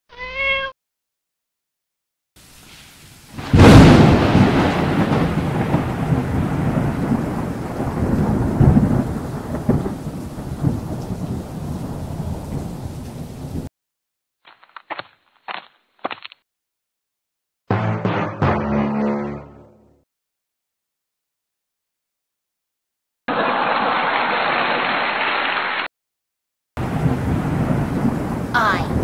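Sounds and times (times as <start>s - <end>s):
faint rain: 2.4s - 13.7s, 23.3s - 25.9s, 26.8s - 29.0s
thunderclap rumbling: 3.3s - 13.7s, 26.8s - 29.0s.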